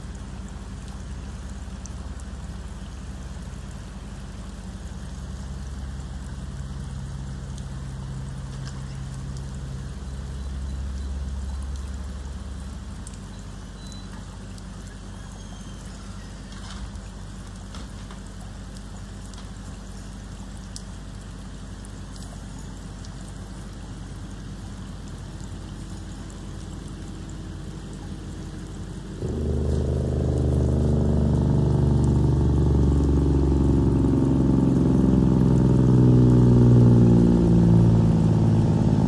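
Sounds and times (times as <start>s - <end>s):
rain on a wet road: 0.0s - 39.0s
distant truck diesel engine: 29.0s - 39.0s.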